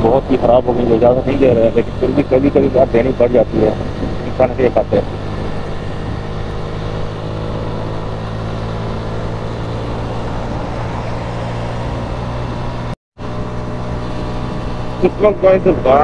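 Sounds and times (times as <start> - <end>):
motorcycle engine cruising: 0.0 - 16.0
wind noise: 3.4 - 15.3.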